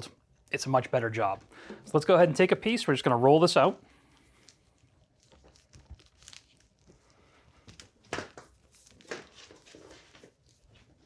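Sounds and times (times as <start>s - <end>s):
cable rustling and scraping: 3.8s - 11.0s.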